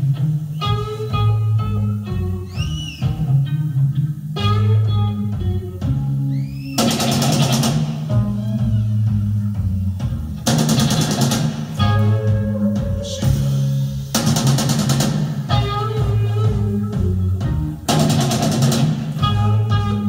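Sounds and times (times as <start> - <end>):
rapid rattling drum hits: 6.8 - 8.2, 10.0 - 11.8, 13.0 - 16.2, 17.4 - 19.5.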